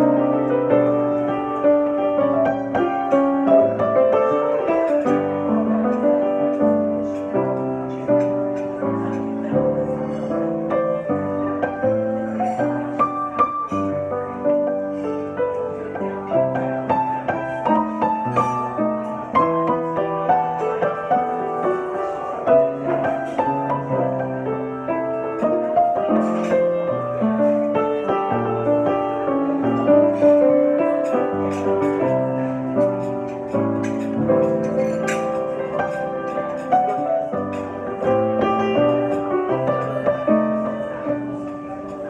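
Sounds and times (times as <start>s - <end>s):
grand piano playing: 0.0s - 42.0s.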